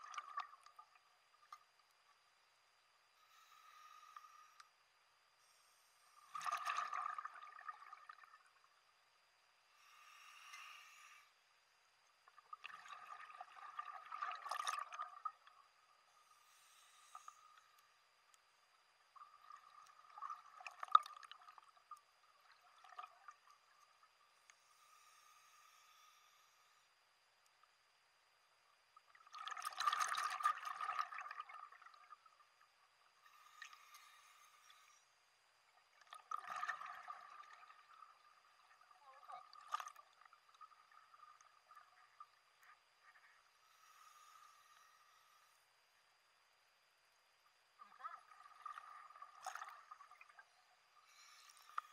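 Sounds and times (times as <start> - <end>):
regulator bubbles gurgling underwater: 0.0 - 1.5, 6.2 - 8.7, 12.2 - 15.8, 18.9 - 24.2, 29.0 - 34.8, 35.6 - 43.2, 47.8 - 51.9
faint steady hum: 0.0 - 51.9
diver's exhaled bubbles gurgling: 29.3 - 32.1.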